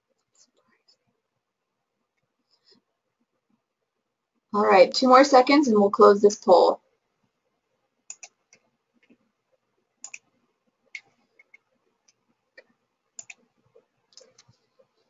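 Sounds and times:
faint computer mouse clicks: 0:08.1 - 0:09.2, 0:10.0 - 0:10.3, 0:10.9 - 0:13.4.

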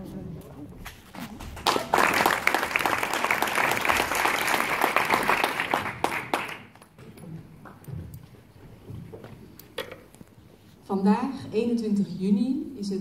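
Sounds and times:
audience applauding: 0:01.4 - 0:07.0.

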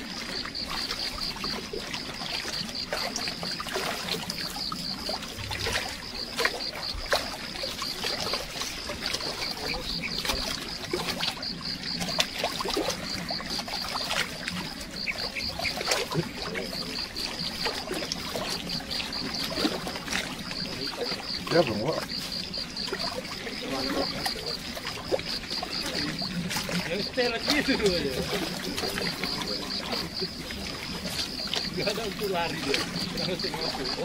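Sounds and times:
small water splashes: 0:00.0 - 0:34.0
small waves lapping on rocks: 0:00.0 - 0:34.0
steady high pulsing chirping: 0:14.6 - 0:15.9.

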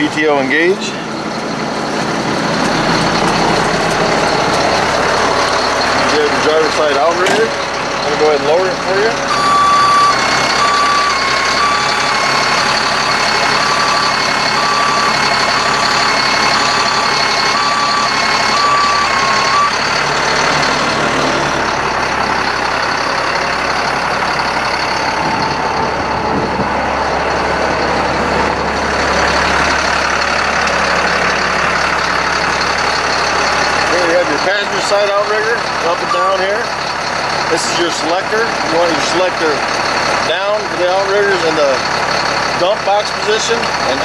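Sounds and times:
diesel engine running: 0:00.0 - 0:44.0
motion alarm beeping: 0:09.3 - 0:20.5.

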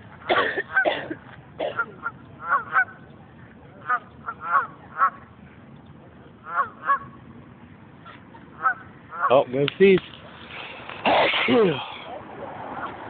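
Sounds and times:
geese honking: 0:01.8 - 0:03.0, 0:03.8 - 0:05.3, 0:06.4 - 0:07.2, 0:08.0 - 0:09.5.

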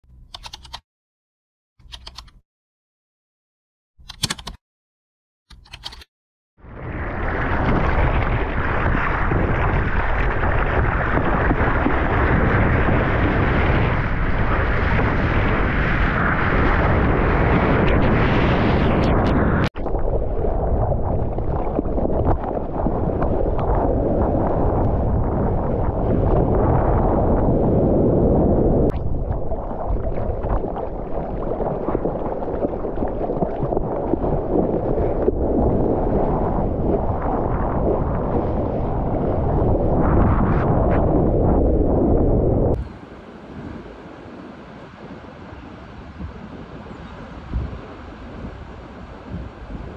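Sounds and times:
brief clicks: 0:00.1 - 0:00.8, 0:01.8 - 0:02.4, 0:04.0 - 0:04.6, 0:05.5 - 0:06.1
wind buffeting microphone: 0:06.6 - 0:49.9
water sloshing and splashing: 0:29.0 - 0:37.5.

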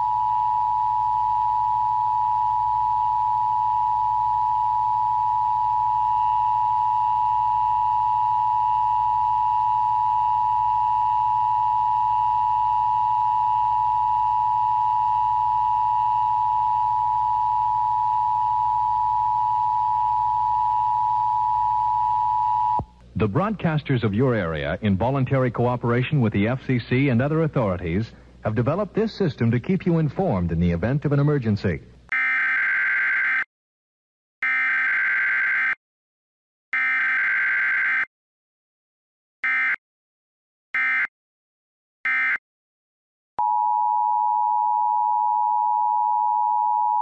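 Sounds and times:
steady dual tone alert signal: 0:42.1 - 0:42.4.

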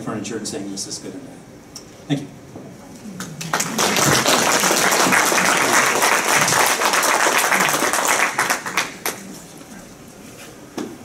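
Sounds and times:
audience applauding: 0:03.2 - 0:09.4.

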